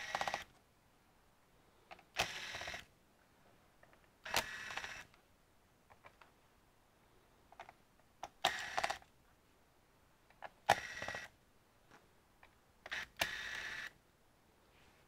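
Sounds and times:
electric screwdriver whirring: 0.0 - 0.5, 2.2 - 2.9, 4.3 - 5.1, 8.5 - 9.0, 10.7 - 11.3, 12.9 - 13.9.

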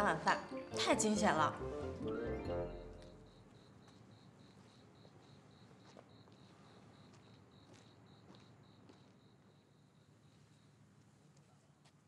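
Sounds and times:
crickets chirping: 2.7 - 11.0.

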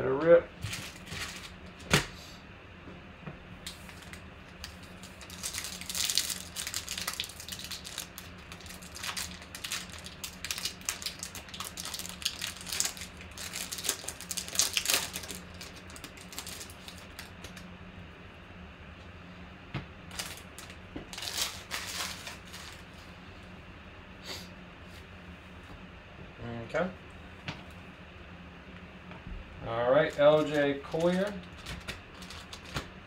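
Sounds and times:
wrapper tearing and crinkling: 0.7 - 1.6, 3.7 - 17.6, 20.1 - 22.8, 30.1 - 32.9.

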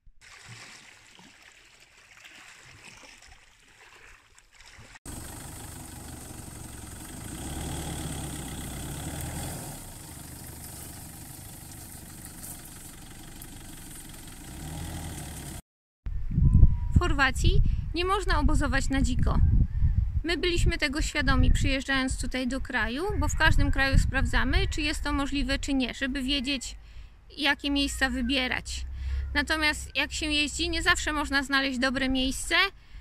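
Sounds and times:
truck engine idling: 5.1 - 15.6.

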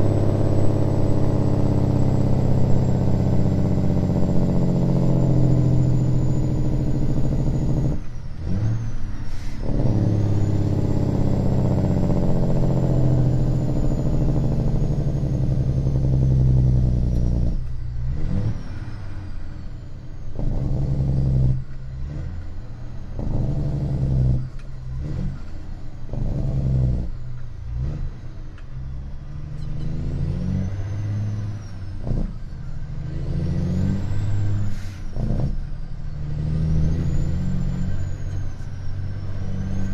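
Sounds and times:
truck diesel engine from cab: 0.0 - 39.9.

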